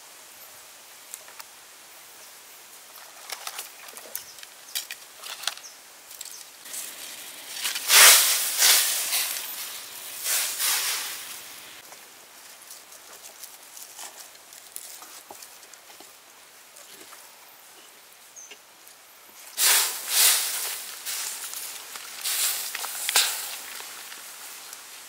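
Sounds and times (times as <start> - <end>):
bean sprouts rustling in a pot: 6.6 - 16.2, 19.6 - 25.0
loud rushing bursts of noise: 6.7 - 11.8.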